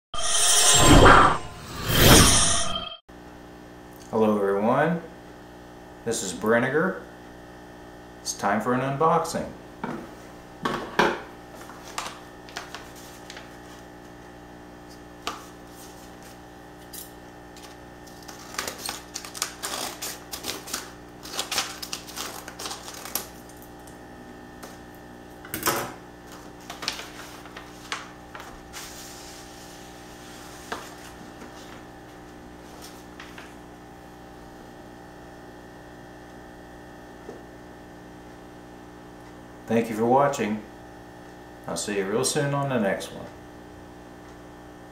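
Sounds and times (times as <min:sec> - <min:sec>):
paper crackling and rustling: 0:11.6 - 0:13.9, 0:17.6 - 0:23.5, 0:26.3 - 0:29.0.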